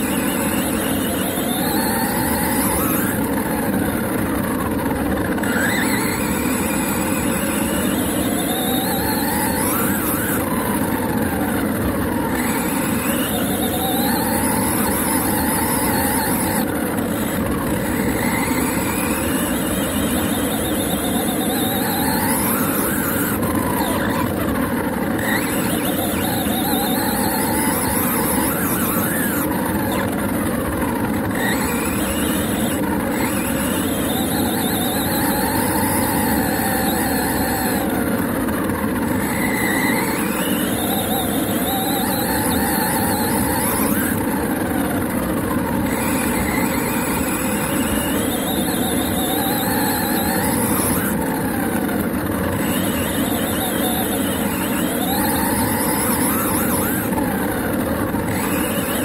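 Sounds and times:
toy car motor whine: 0.0 - 59.0.

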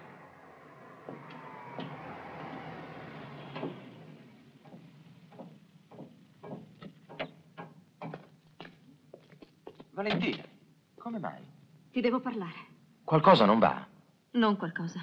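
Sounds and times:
steady outdoor hiss: 0.0 - 15.0
footsteps on metal ladder: 4.7 - 10.5.

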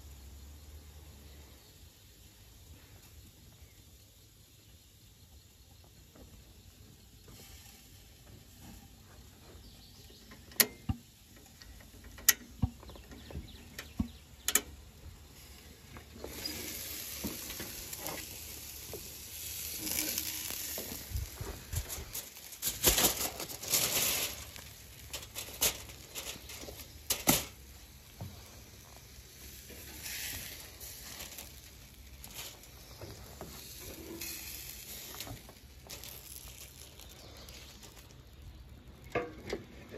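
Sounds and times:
steak sizzling: 14.7 - 38.8
grill lid clanks: 39.1 - 39.8.

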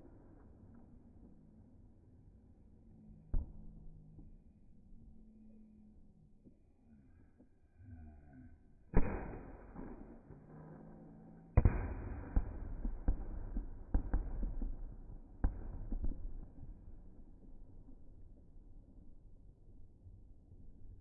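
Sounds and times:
slowed fireworks bangs: 9.0 - 18.3.

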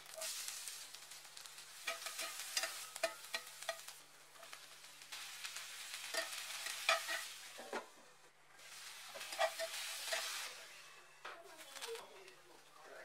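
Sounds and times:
vegetables sizzling in a pan: 0.0 - 12.1
utensil scraping against pan: 1.7 - 7.8, 8.6 - 10.6.

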